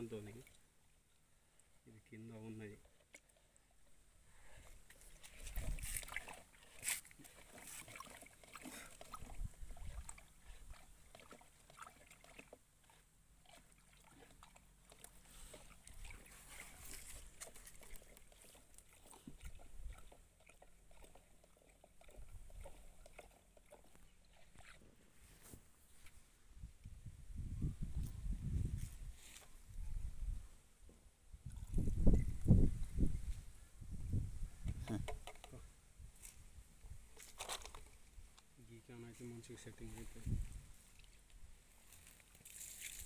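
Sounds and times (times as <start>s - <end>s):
stick stirring slurry: 4.9s - 24.8s.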